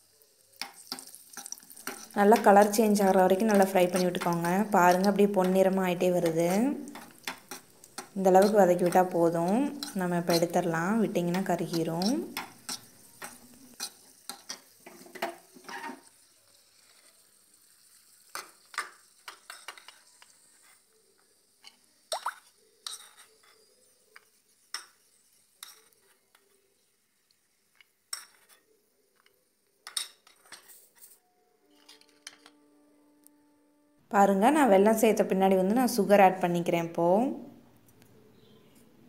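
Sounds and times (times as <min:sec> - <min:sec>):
faint sizzle: 0:00.0 - 0:39.0
metal spoon scraping a pan: 0:00.6 - 0:20.9, 0:22.7 - 0:26.7, 0:27.7 - 0:28.7, 0:29.8 - 0:32.6.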